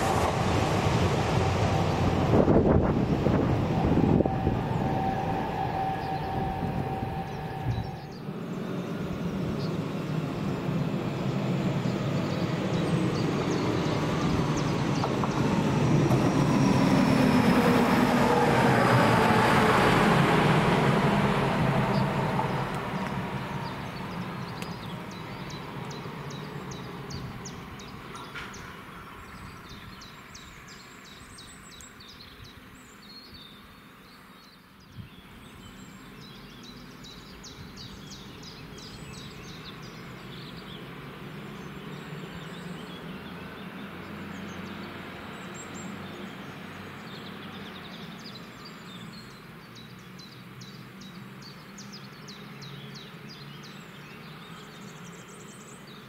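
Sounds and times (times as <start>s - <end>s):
low hum: 0.0s - 27.8s
diesel railcar engine drone: 0.0s - 30.8s
songbirds chirping: 1.2s - 16.2s, 21.8s - 56.0s.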